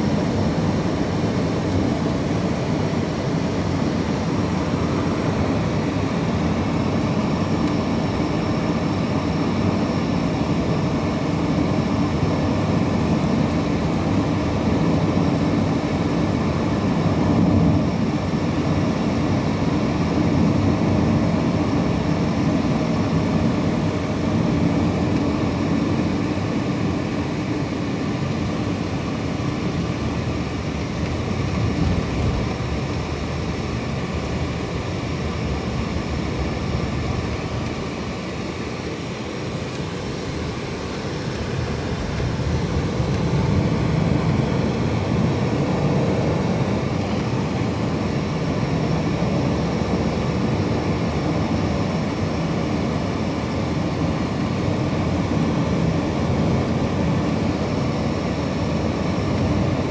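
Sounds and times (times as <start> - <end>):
car interior road and engine noise: 28.2 - 48.2.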